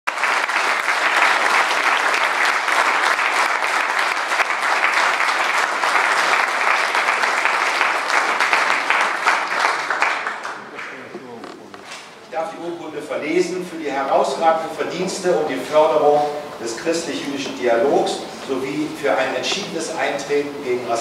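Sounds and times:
audience applauding: 0.1s - 11.6s.

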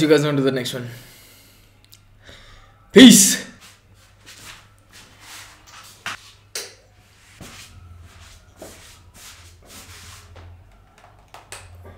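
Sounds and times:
person rustling and shuffling: 3.5s - 10.7s.

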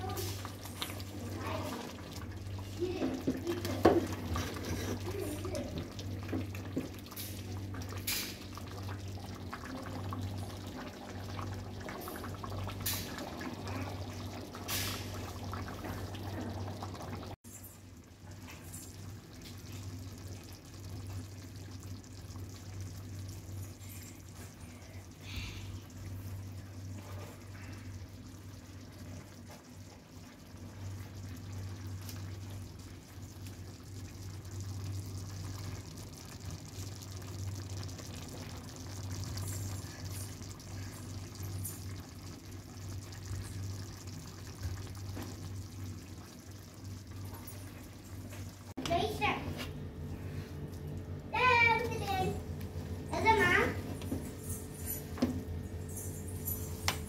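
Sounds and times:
pot simmering and bubbling: 0.0s - 57.0s
steady low hum: 0.0s - 57.0s.

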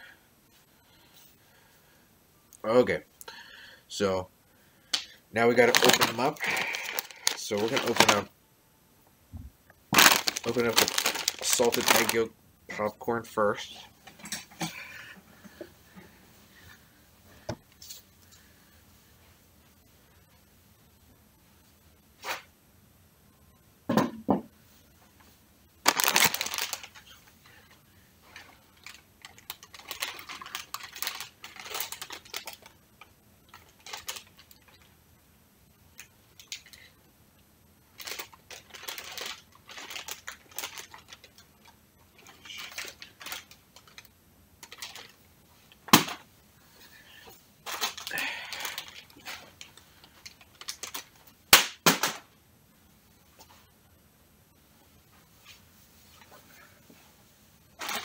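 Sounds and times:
plastic bag crinkling: 5.4s - 8.3s, 9.9s - 12.3s, 25.8s - 27.6s, 28.2s - 32.8s, 33.5s - 34.9s, 37.9s - 41.4s, 42.1s - 45.2s, 47.6s - 51.2s, 57.8s - 58.0s.

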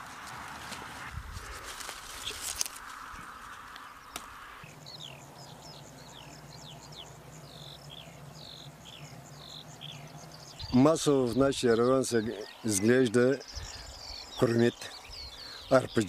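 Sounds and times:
songbirds chirping: 0.0s - 16.0s.

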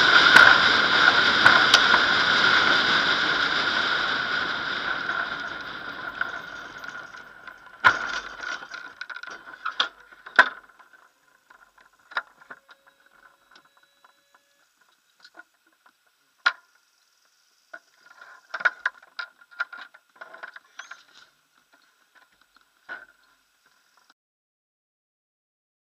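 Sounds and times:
glider rolling on grass: 0.0s - 16.0s
clicks and small knocks: 6.2s - 16.6s
faint steady high tone: 12.0s - 15.2s.

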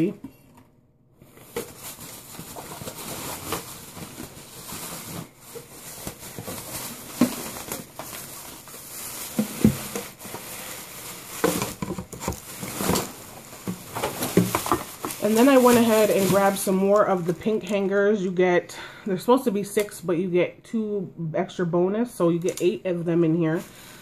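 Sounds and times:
plastic bag rustling: 1.2s - 18.0s, 22.6s - 24.0s.

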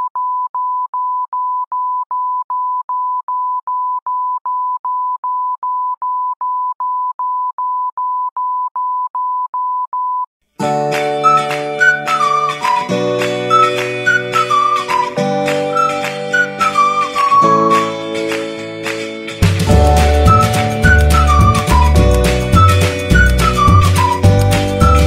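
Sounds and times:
background music: 10.6s - 25.0s.

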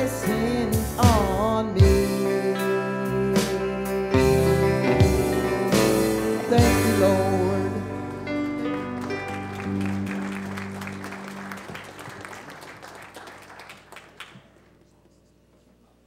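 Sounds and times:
guitar chord ringing out: 2.2s - 11.7s
congregation applauding: 7.9s - 14.8s.

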